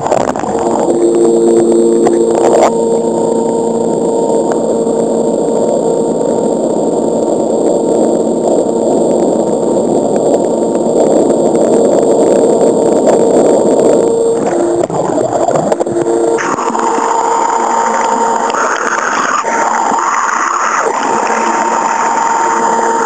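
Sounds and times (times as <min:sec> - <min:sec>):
motor whine: 0:00.0 - 0:23.0
rushing water: 0:16.4 - 0:23.0.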